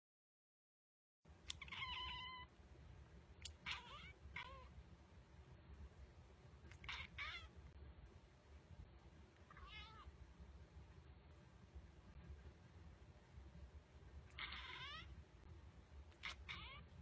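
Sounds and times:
cat meowing softly: 1.5 - 2.5, 3.6 - 4.7, 6.7 - 7.5, 9.5 - 10.1, 14.3 - 15.1, 16.2 - 16.9.

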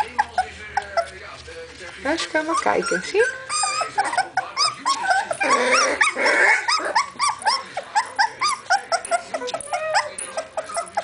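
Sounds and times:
puppies squealing and yipping: 0.0 - 1.4, 2.0 - 11.0
puppies scuffling: 0.0 - 11.0.

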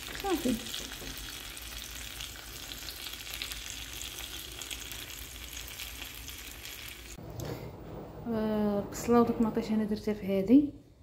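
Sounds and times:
vegetables sizzling in oil: 0.0 - 7.2.

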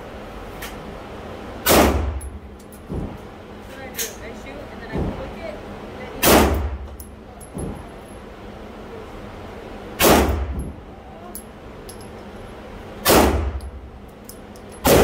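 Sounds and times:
pistol shots with echo: 1.6 - 2.2, 6.2 - 6.8, 10.0 - 10.5, 13.0 - 13.6.

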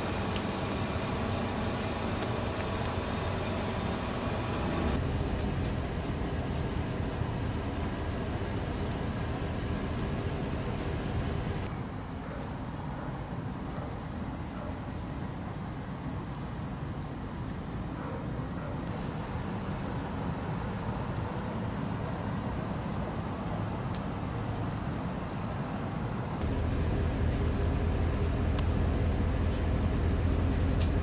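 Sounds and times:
low outdoor rumble: 0.0 - 11.7, 18.8 - 31.0
faint high whine: 18.8 - 31.0.

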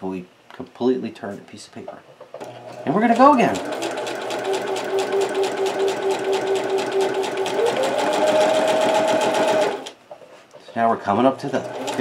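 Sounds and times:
sewing machine stitching: 2.4 - 10.0, 10.7 - 12.0.

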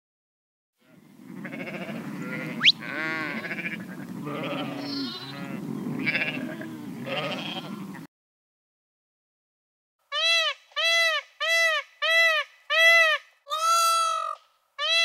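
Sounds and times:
goats bleating: 0.8 - 8.0.

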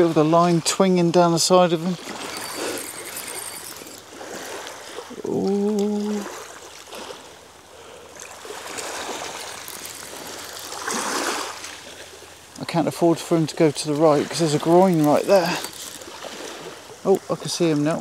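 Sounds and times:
waves washing over shingle: 0.0 - 7.4, 8.2 - 17.9
man humming: 5.2 - 6.3.

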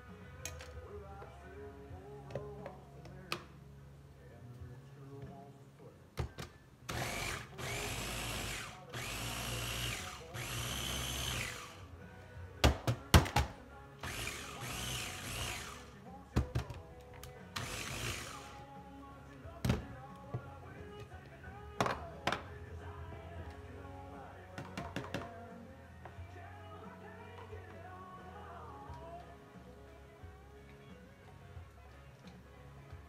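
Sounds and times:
blender whirring: 6.9 - 11.8, 14.1 - 15.8.

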